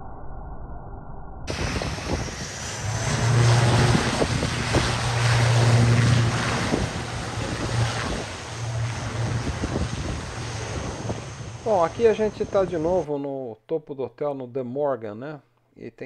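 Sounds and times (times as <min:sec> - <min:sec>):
propeller aircraft droning: 0:01.5 - 0:13.0
wind buffeting microphone: 0:01.5 - 0:13.0.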